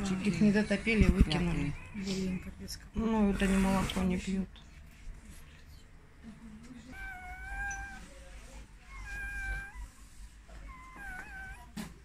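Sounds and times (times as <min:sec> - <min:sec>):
puppies whining: 0:06.9 - 0:08.2, 0:08.8 - 0:12.0.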